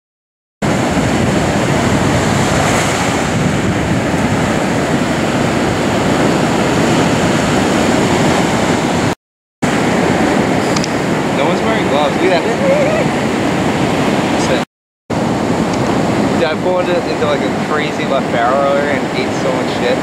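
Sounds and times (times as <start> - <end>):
ocean surf breaking on shore: 0.6 - 20.0.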